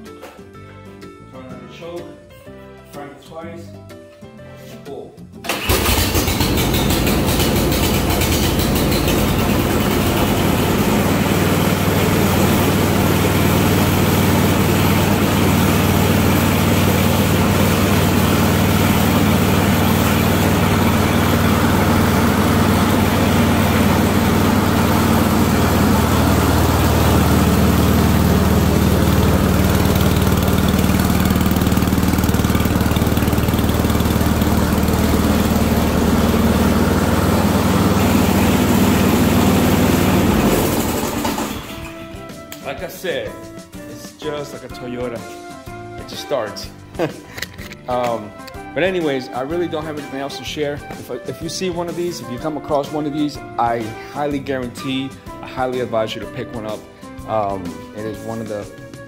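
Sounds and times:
snowblower engine running: 0:05.5 - 0:42.1.

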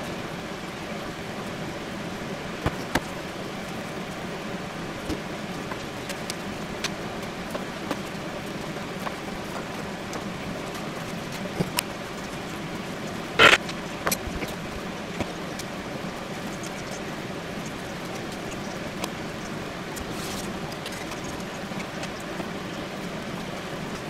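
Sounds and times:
steady background noise: 0:00.0 - 0:24.0.

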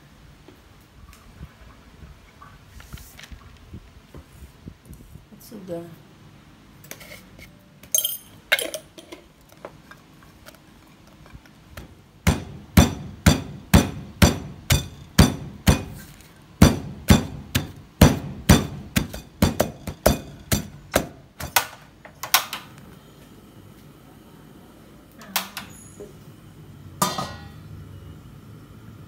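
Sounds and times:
wooden pestle pounding in mortar: 0:12.3 - 0:16.0, 0:16.6 - 0:21.6.

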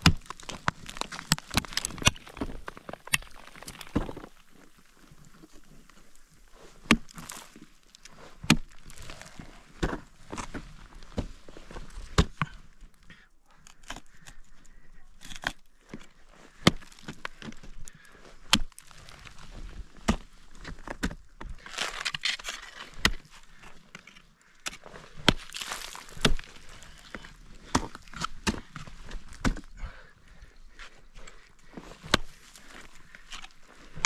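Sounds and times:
ice axes striking ice: 0:00.0 - 0:04.4, 0:06.8 - 0:07.6, 0:08.4 - 0:09.1, 0:16.6 - 0:17.4, 0:18.4 - 0:19.2, 0:20.0 - 0:29.7
crunching ice: 0:00.0 - 0:30.5, 0:31.2 - 0:34.0.

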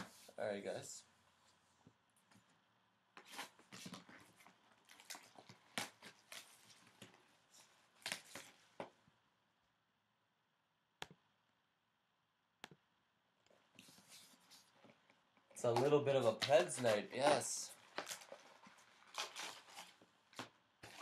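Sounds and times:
plastic shrink-wrap crinkling: 0:16.5 - 0:20.1.

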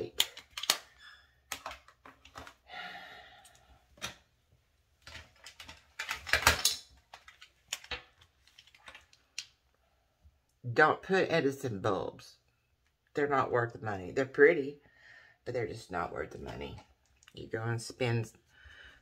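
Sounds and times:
makeup containers clicking and clattering: 0:00.0 - 0:02.7, 0:05.0 - 0:09.6.

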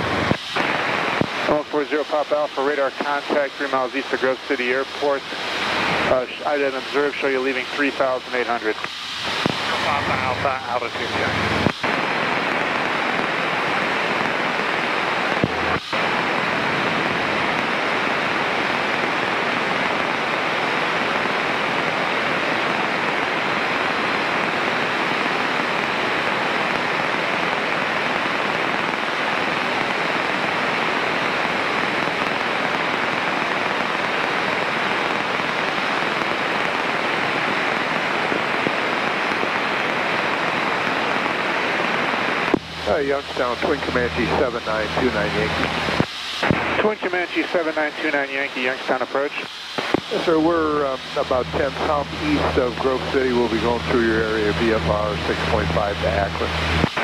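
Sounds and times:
radio static hiss: 0:00.0 - 0:57.0
short radio click: 0:49.7 - 0:50.1.

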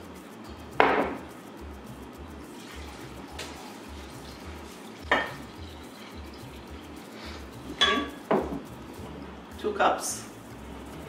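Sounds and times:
liquid pouring into cup: 0:02.4 - 0:08.5
glass clink: 0:05.1 - 0:05.8, 0:07.7 - 0:08.6.

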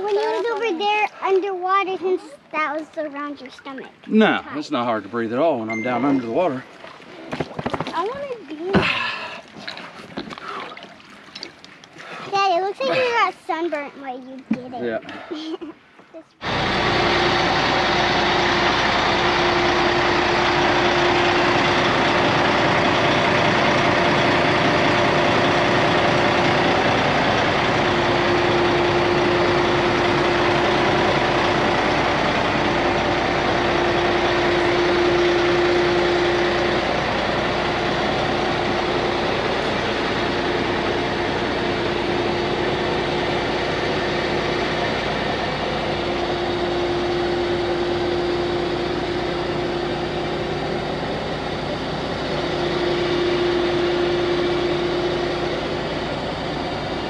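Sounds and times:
engine idling with humming tone: 0:16.4 - 0:57.0.

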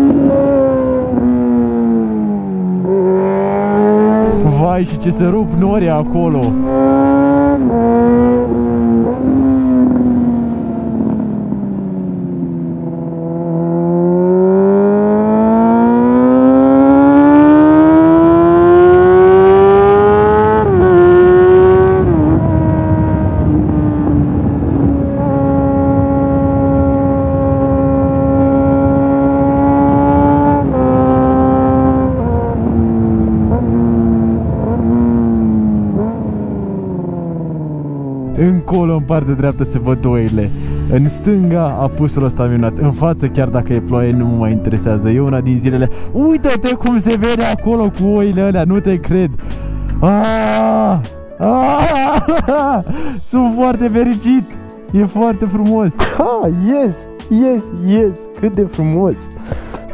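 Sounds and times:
motorcycle engine revving: 0:00.0 - 0:38.9
wind rushing: 0:03.7 - 0:09.0.

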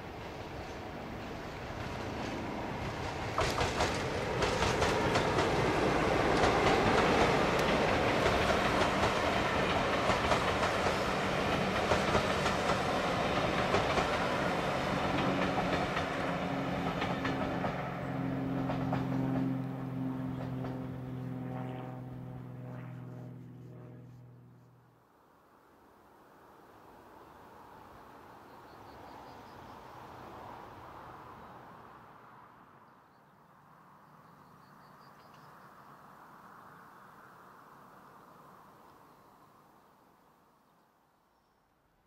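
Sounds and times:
engine hum: 0:00.1 - 0:25.0
train wheels clicking over rail joints: 0:01.7 - 0:17.8, 0:18.5 - 0:19.6.

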